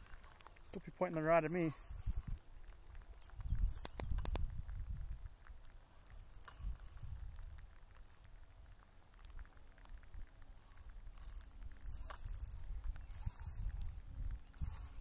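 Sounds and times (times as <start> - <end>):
fishing reel drag buzzing: 0.0 - 2.5, 3.1 - 4.6, 6.0 - 8.3, 10.1 - 15.0
wind rumble on microphone: 1.9 - 5.9, 6.5 - 7.9, 9.2 - 15.0.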